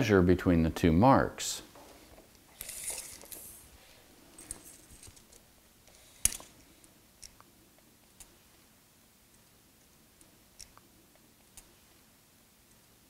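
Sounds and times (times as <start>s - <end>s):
tape measure blade sliding: 2.6s - 3.6s.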